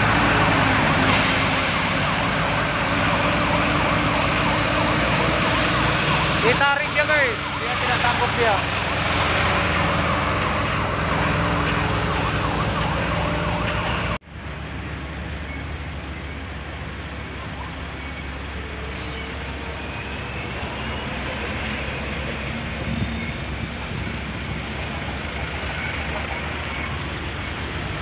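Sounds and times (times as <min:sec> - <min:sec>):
siren-like wailing: 0:00.0 - 0:14.2
truck diesel engines running: 0:00.0 - 0:28.0
vehicle driving in traffic: 0:00.0 - 0:28.0.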